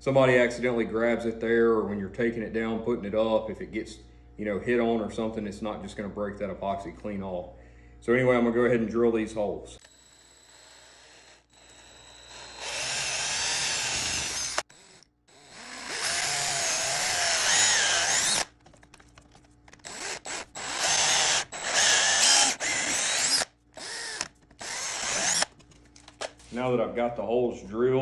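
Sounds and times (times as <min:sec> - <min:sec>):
cordless drill boring into antler: 0:09.8 - 0:18.5, 0:19.8 - 0:25.5.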